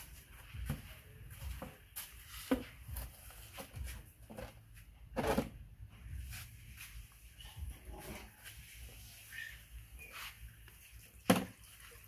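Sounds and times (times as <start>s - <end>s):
objects knocking and scuffing: 0.0s - 8.9s, 11.1s - 11.9s.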